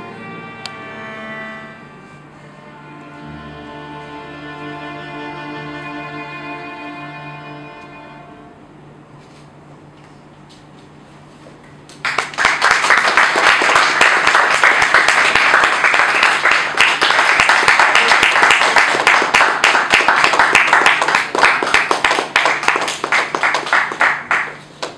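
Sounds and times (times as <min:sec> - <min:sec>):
audience applauding: 0:11.9 - 0:24.9.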